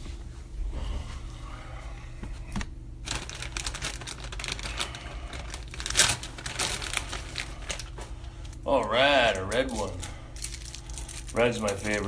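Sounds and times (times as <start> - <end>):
plastic wrapper crinkling: 3.0 - 12.0.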